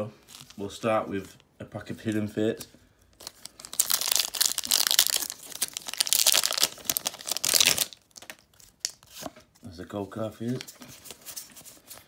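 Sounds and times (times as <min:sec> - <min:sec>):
foil wrapper crinkling and tearing: 0:03.2 - 0:09.1.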